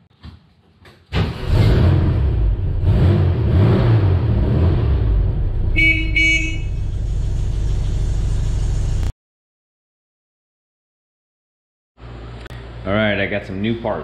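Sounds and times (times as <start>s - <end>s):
van horn toots: 5.6s - 7.6s.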